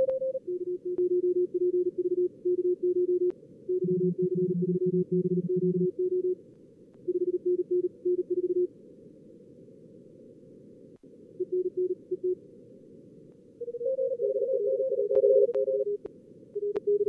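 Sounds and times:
receiver noise hiss: 0.0s - 17.0s
morse code tones: 13.6s - 16.0s.

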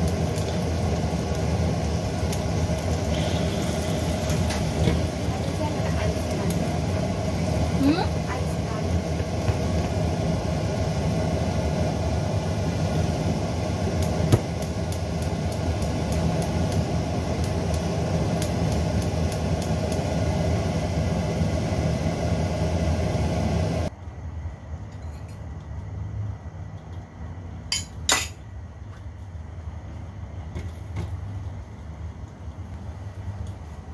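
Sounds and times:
egg frying crackling: 0.0s - 23.9s.

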